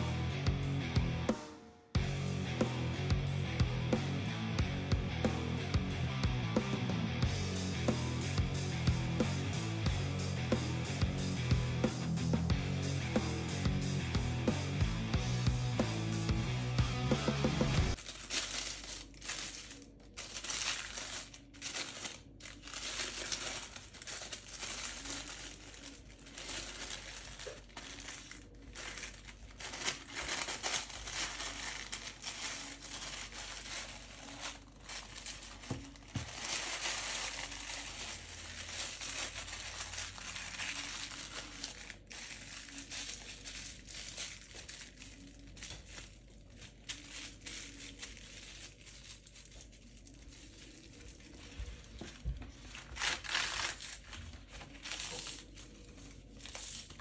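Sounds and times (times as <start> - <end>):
tissue paper crinkling: 17.9 - 57.0
wrapping paper crackling: 17.9 - 57.0.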